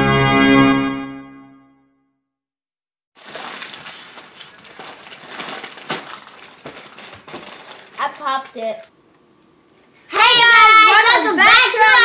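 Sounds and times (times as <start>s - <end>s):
synthesizer intro music: 0.0s - 1.7s
crackling rustling noise: 3.2s - 9.0s.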